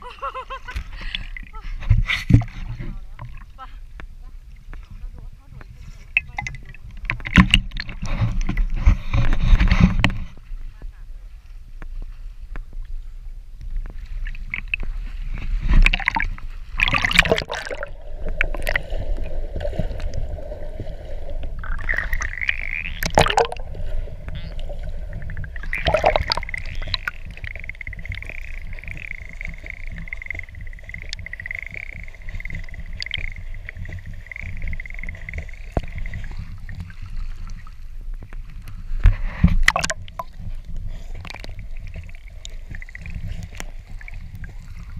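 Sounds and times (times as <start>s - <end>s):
water sloshing and splashing: 0.2s - 13.0s, 13.7s - 44.9s
low muffled rumble: 0.2s - 14.2s
steady underwater whine: 14.5s - 44.9s.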